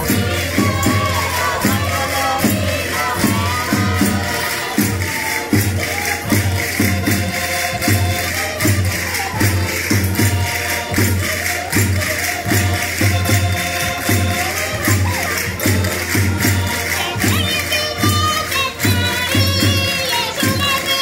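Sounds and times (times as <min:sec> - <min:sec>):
group singing: 0:00.0 - 0:17.8
bass drum beat: 0:00.0 - 0:18.2
accordion melody: 0:00.0 - 0:21.0
jingling percussion: 0:00.0 - 0:21.0.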